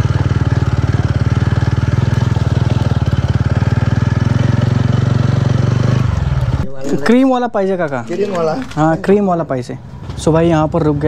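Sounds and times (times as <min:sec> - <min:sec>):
motorcycle engine running: 0:00.0 - 0:06.7.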